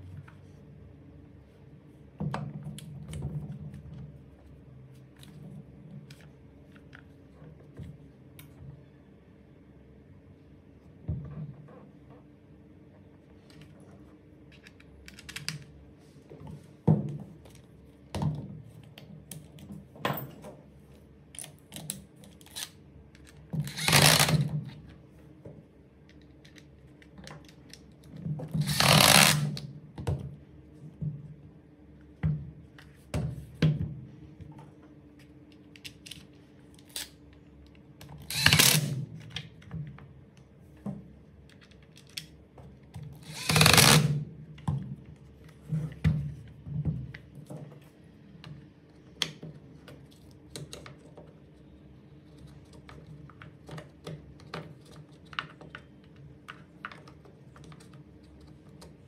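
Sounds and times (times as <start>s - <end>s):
impact driver driving screws: 43.3s - 44.2s.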